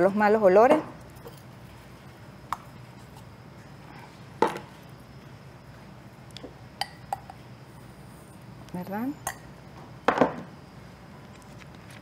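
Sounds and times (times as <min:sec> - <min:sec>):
light glassware clinks: 0:09.2 - 0:09.5.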